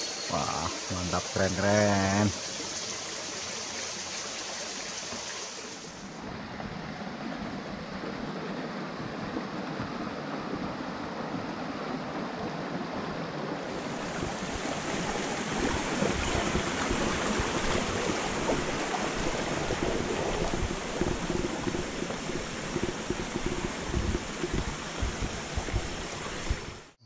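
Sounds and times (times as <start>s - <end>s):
stream rushing over rocks: 0.1s - 27.0s
low thumps and rumbles: 15.6s - 27.0s.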